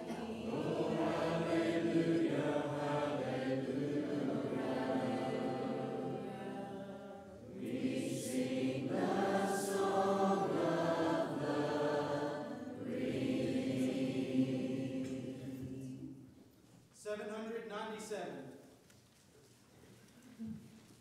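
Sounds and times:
congregation singing a hymn: 0:00.0 - 0:16.5.

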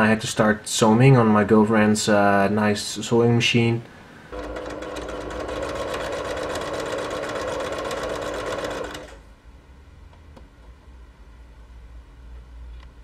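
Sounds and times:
sewing machine stitching: 0:04.3 - 0:09.2.

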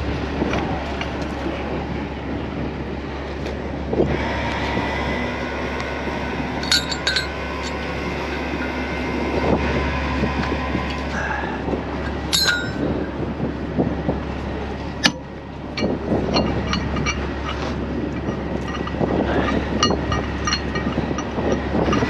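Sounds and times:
steel chain hooks clinking: 0:06.6 - 0:07.9, 0:12.1 - 0:13.1, 0:15.0 - 0:22.0.

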